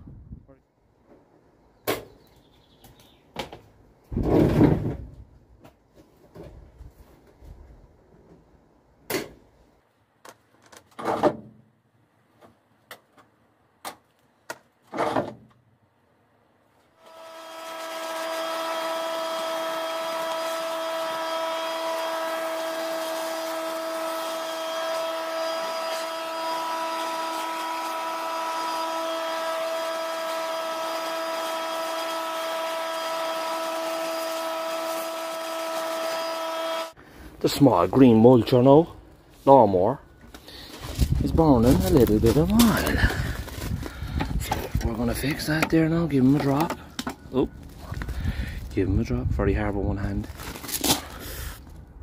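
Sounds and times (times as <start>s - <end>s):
leaf blower running: 17.0s - 37.0s.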